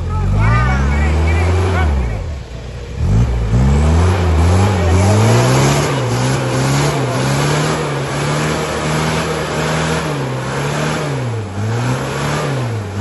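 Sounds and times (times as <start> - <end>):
engine revving under load: 0.0 - 13.0.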